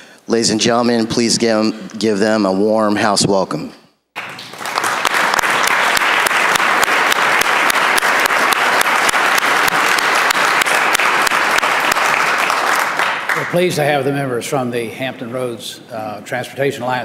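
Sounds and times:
crowd applauding: 4.2s - 13.7s.

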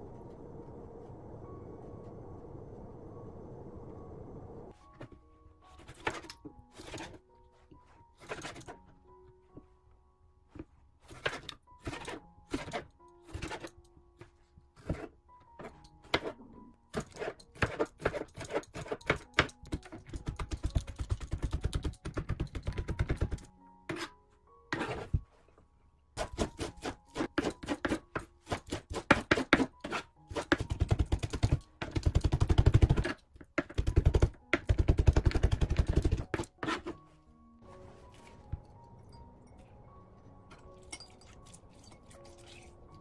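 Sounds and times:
background music: 0.0s - 43.0s
knife chopping on cutting board: 26.2s - 30.9s.

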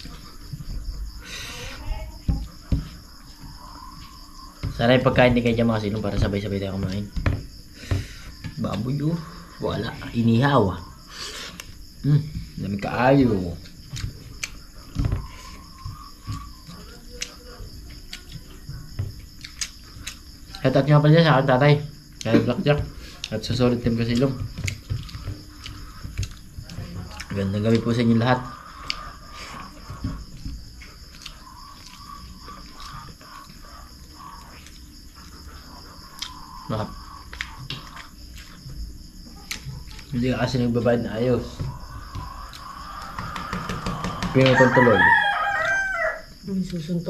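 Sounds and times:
crickets chirping: 0.0s - 47.0s
faint eating clicks: 19.2s - 20.6s
dull knock on a plate: 43.2s - 44.5s.

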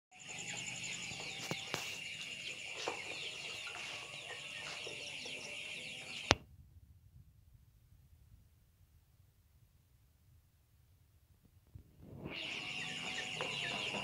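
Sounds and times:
chicks chirping and clucking: 0.2s - 6.4s, 12.3s - 14.0s.

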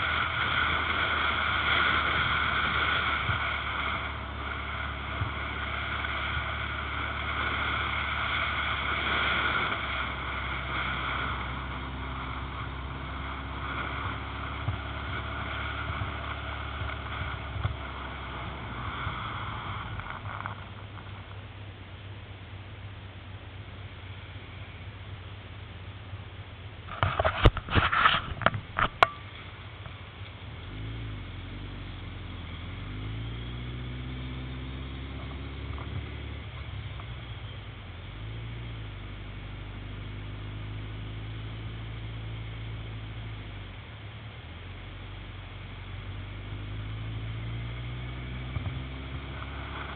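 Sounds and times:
wind rushing over camera: 0.0s - 21.4s
motorcycle engine running: 0.0s - 49.9s
wind and road noise: 0.0s - 49.9s.

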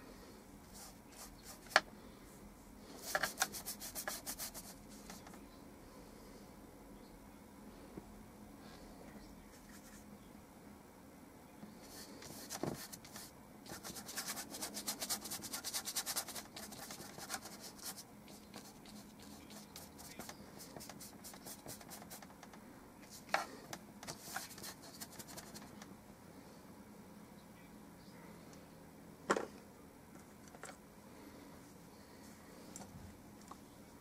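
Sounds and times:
paintbrush scratching on paper: 0.7s - 1.8s, 3.0s - 5.2s, 11.8s - 22.3s, 24.1s - 25.7s.

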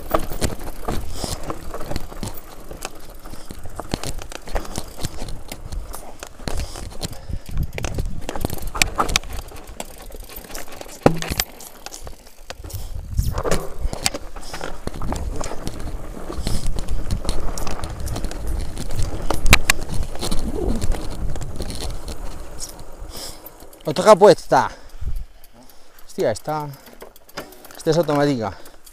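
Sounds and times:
mountain bike rattling down rocky trail: 0.0s - 28.9s
wheels knocking on rocks: 0.0s - 28.9s
wind rumbling on microphone: 3.4s - 9.7s, 12.6s - 23.2s.

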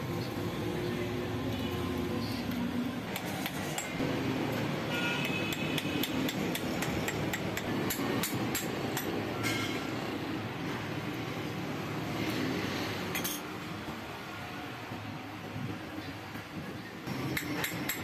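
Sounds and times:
hammer tapping metal: 5.2s - 9.2s, 17.3s - 18.0s.

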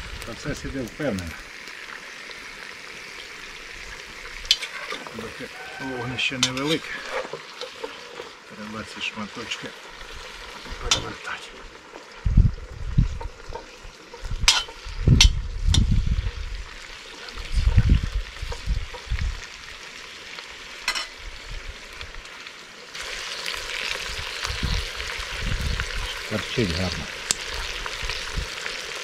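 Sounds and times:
meat sizzling in a pot: 0.0s - 29.0s
metal utensil scraping a pot: 4.5s - 5.3s, 6.2s - 8.4s, 13.1s - 15.8s.

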